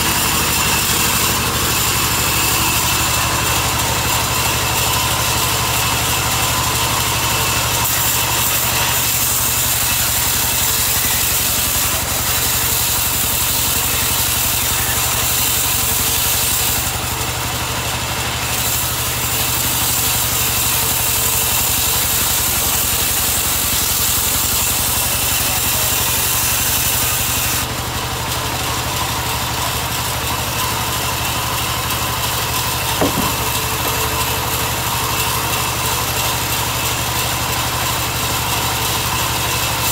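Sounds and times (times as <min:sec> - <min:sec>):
band saw cutting log: 0:00.0 - 0:39.9
single knock: 0:33.0 - 0:34.0.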